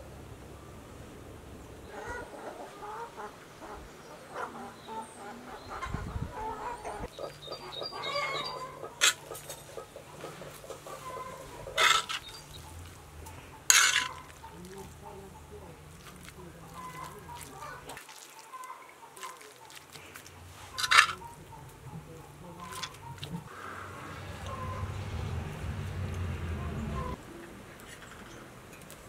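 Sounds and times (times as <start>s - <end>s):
chickens clucking: 1.9s - 27.5s
metal spoon scraping griddle: 9.0s - 12.5s, 13.7s - 14.5s, 20.6s - 21.3s.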